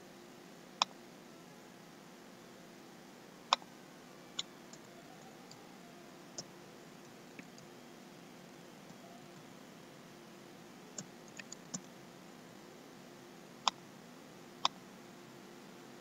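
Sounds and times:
faint steady hiss: 0.0 - 16.0
mouse clicks: 11.0 - 11.9.

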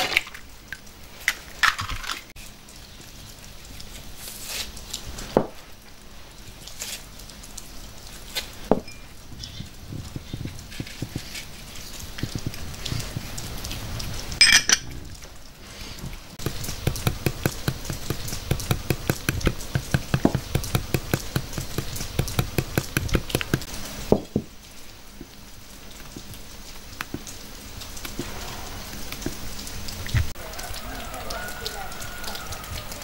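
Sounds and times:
fast regular knocks: 16.4 - 24.5.

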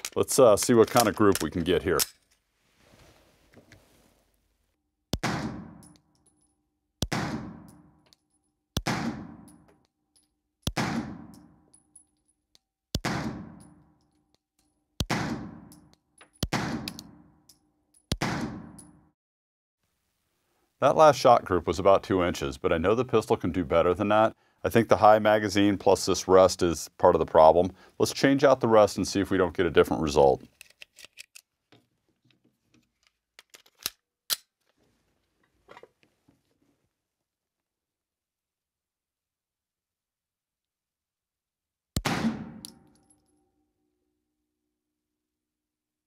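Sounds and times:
pistol clicks and rattles: 0.0 - 2.4, 30.5 - 31.5, 32.9 - 34.6
pistol shots with echo: 42.0 - 42.8.

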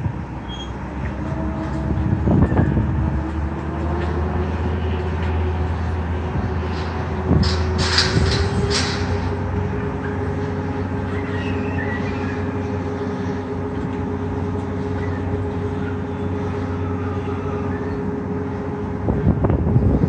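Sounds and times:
construction machinery engine drone: 0.0 - 20.0.

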